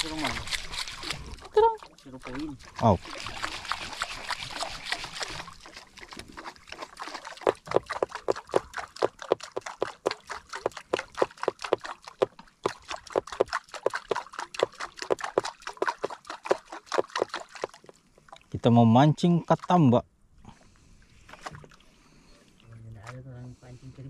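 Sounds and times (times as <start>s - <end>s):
waves lapping against wooden hull: 0.0s - 18.6s, 19.2s - 24.0s.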